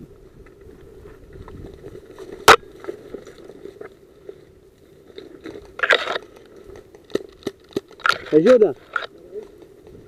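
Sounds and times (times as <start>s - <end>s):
twigs crunching and rustling: 0.4s - 10.0s
twig cracking: 5.1s - 10.0s.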